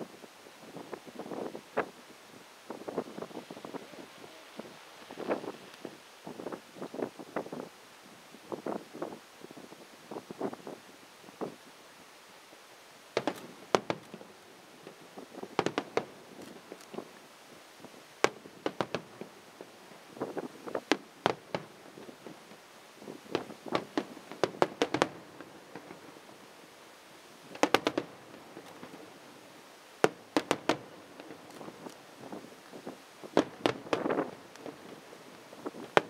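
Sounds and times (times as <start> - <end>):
fireworks bangs: 2.7 - 7.0, 13.1 - 17.2, 17.8 - 26.7, 27.3 - 36.0.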